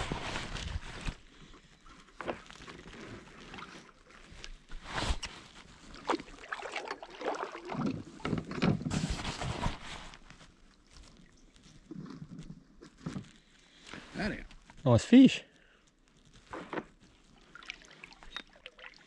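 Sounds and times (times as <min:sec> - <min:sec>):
paddle splashing in water: 0:02.7 - 0:10.2, 0:16.5 - 0:19.0
water drips: 0:17.3 - 0:19.0.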